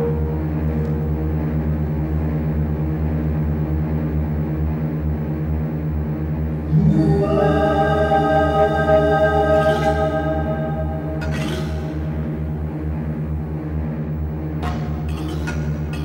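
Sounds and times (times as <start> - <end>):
bright ringing held tones: 0.0 - 2.5
dark dramatic drone music: 0.0 - 16.0.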